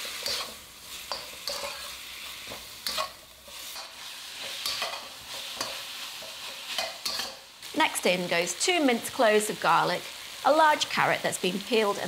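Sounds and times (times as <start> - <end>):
metal spatula scraping a wok: 0.0 - 7.7
food sizzling in a wok: 0.0 - 12.0.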